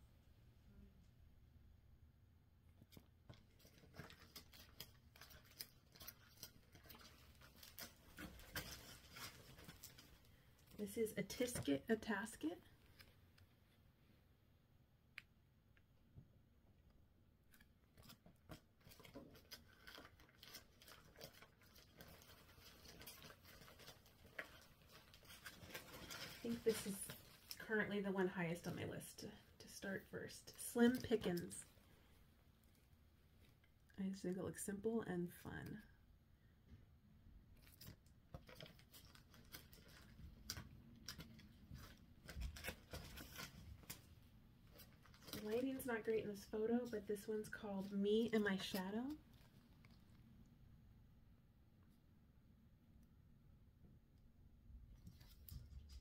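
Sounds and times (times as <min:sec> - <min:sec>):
plastic and paper rustling: 0:02.9 - 0:13.2, 0:17.9 - 0:31.8, 0:37.6 - 0:50.2.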